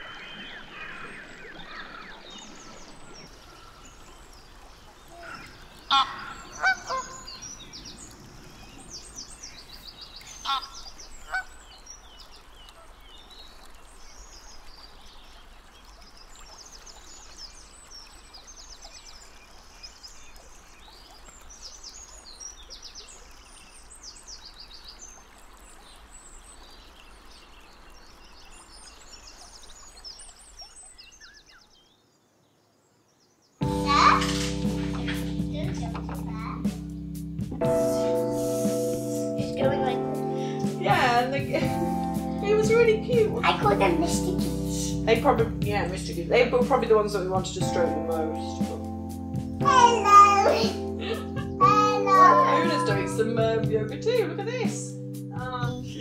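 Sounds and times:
small birds chirping: 0:00.0 - 0:56.0
geese honking: 0:05.2 - 0:07.4, 0:10.3 - 0:11.6.

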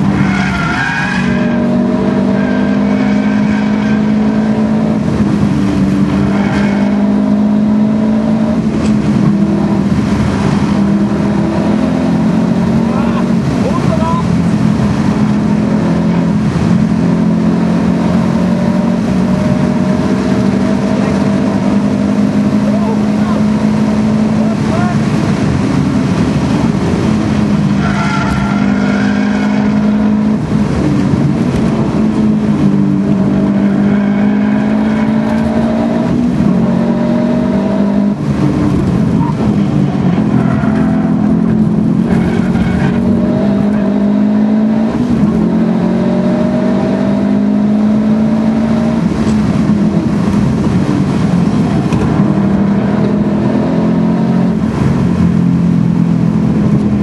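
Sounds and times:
car engine accelerating hard: 0:00.0 - 0:57.0.

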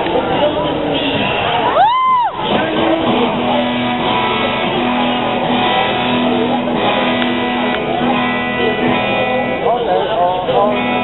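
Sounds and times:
guitar strumming: 0:00.0 - 0:11.0.

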